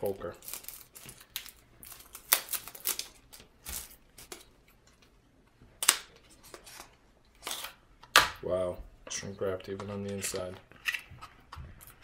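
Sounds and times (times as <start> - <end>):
plastic wrap crinkling: 0.2 - 4.5.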